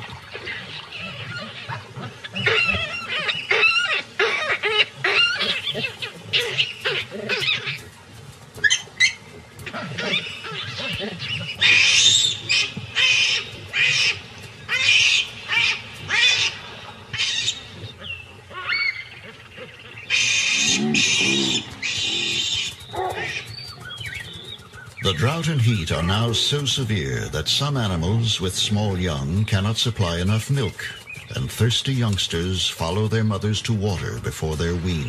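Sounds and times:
baboons calling and screaming: 0.0 - 33.1.

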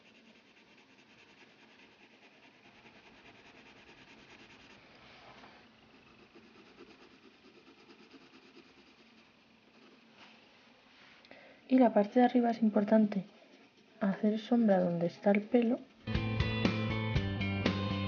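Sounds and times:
pencil scratching on paper: 0.0 - 4.8, 5.8 - 10.1, 12.4 - 14.8.

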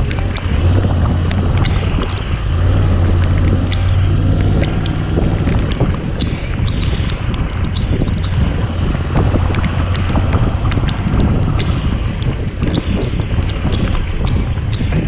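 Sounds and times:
motorcycle engine humming: 0.0 - 15.0
raindrops ticking: 0.0 - 15.0
wind rushing over microphone: 0.0 - 15.0.

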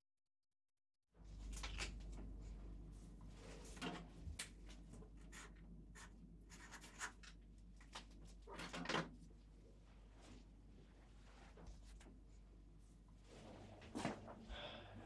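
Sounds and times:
pen scratching on paper: 5.2 - 7.2.

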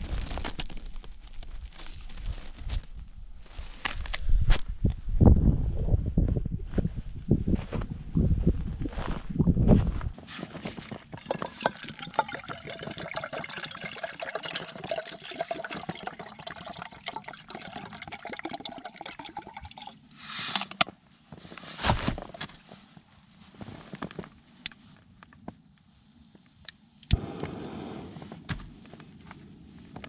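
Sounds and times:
water pouring into a container: 10.8 - 20.6
rustle: 20.2 - 26.7.

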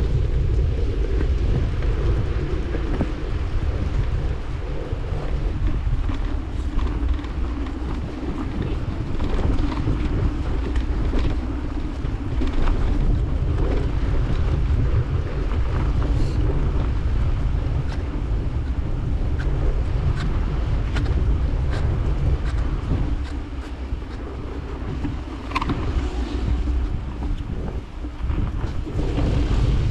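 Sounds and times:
wind buffeting microphone: 0.0 - 29.9.

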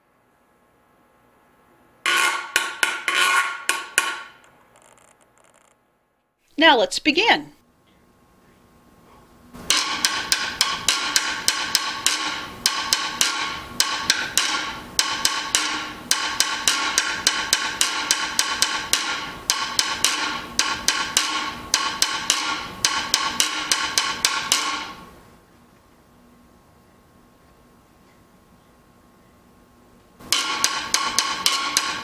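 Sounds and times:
guiro tapped and scraped: 2.1 - 5.8, 30.2 - 32.0.

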